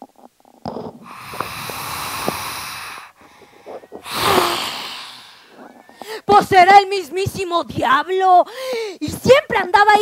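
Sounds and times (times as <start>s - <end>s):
harsh breathy monster hisses: 1.0s - 5.7s.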